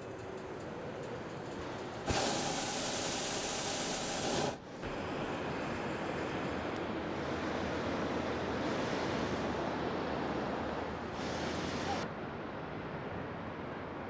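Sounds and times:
propane burner hissing blast: 1.6 - 12.1.

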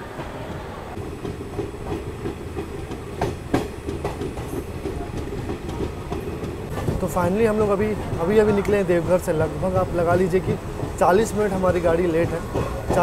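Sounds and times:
train rumble: 0.0 - 13.0
wheels clacking over rail joints: 0.0 - 13.0.

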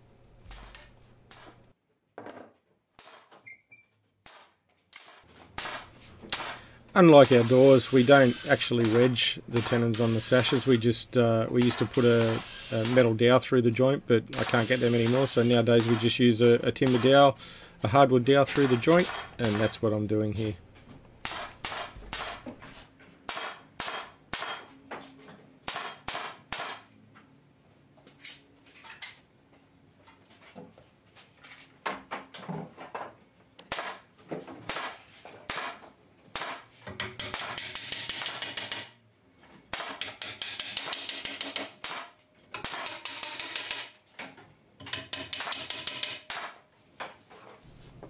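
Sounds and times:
hammer knocking wooden dowels: 36.9 - 39.0, 39.8 - 41.8, 42.6 - 44.0, 44.8 - 46.4.

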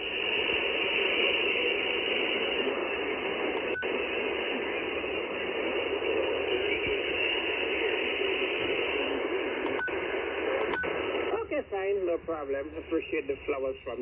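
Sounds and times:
radio receiver hiss: 0.0 - 14.0.

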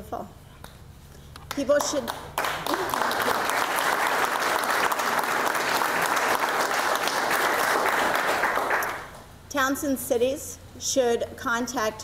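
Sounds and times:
people applauding: 1.5 - 9.2.

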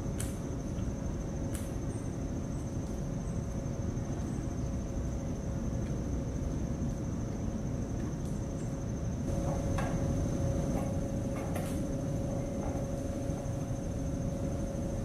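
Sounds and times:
faint hum: 0.0 - 15.0
insect trilling: 0.0 - 15.0.

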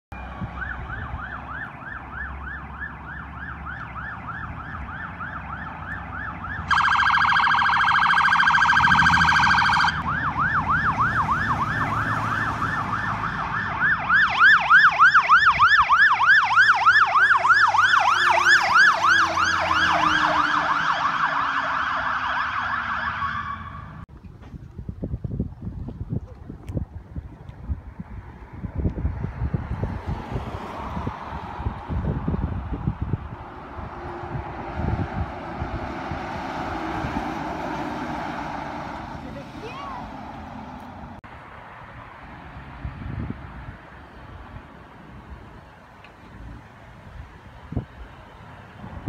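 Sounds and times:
sirens yelping: 0.1 - 24.0, 29.8 - 41.2
loud horn blast: 19.9 - 20.8.

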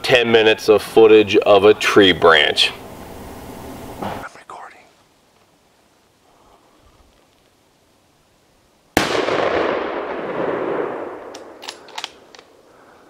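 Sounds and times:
rifle shot with rolling echo: 9.0 - 12.7.

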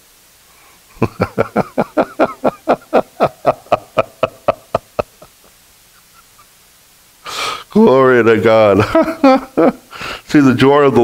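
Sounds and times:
man laughing: 0.9 - 6.5, 8.7 - 9.9.

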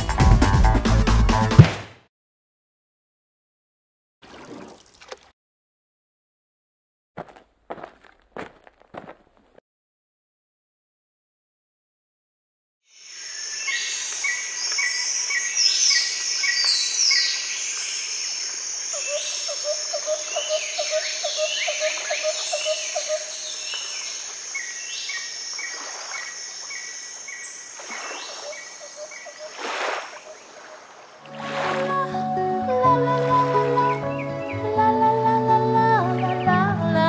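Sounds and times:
birds chirping: 18.9 - 31.4, 33.2 - 34.7.

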